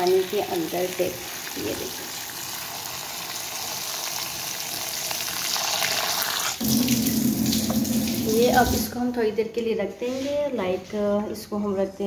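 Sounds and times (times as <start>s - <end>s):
tap water splashing into bowl: 6.6s - 8.8s.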